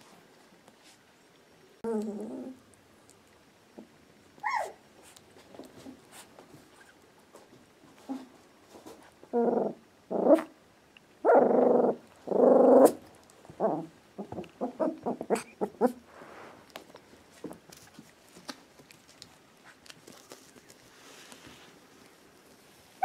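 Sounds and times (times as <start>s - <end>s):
puppy barking and growling: 4.4s - 4.8s, 9.3s - 10.6s, 11.2s - 16.0s.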